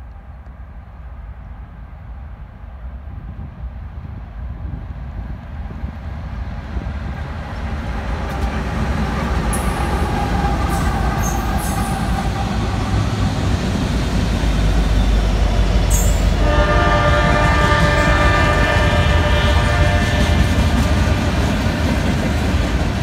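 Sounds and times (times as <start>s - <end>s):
diesel locomotive rumble: 3.2s - 23.0s
train horn chord: 15.9s - 21.4s.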